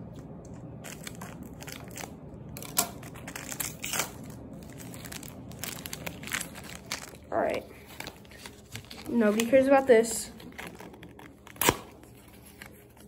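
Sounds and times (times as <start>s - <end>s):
foil wrapper crinkling: 0.7s - 13.0s
scissors cutting foil: 0.8s - 7.6s, 10.4s - 12.6s.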